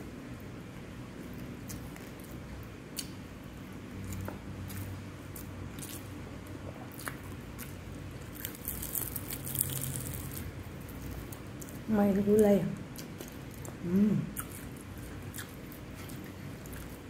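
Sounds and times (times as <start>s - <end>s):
chewing food: 4.0s - 11.9s, 12.8s - 17.0s.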